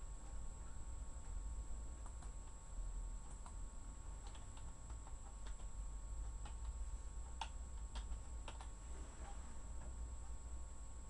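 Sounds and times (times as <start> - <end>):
steady low hum: 0.0 - 11.0
faint small clicks: 2.0 - 2.6.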